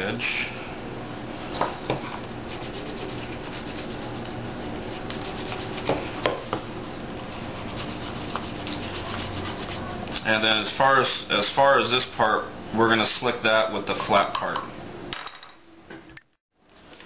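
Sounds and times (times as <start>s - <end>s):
wooden slicker rubbing leather edge: 2.5s - 6.0s, 7.5s - 9.9s.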